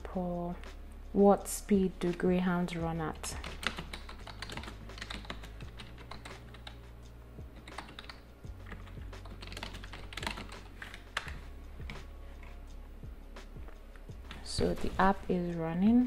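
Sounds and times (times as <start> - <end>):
low steady hum: 0.0 - 16.0
keyboard typing clicks: 3.4 - 6.8, 7.6 - 8.2.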